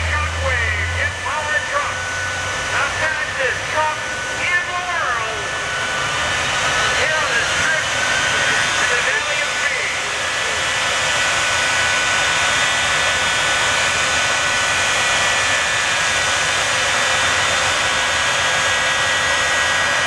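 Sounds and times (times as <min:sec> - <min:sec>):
jet engines idling: 0:00.0 - 0:20.0.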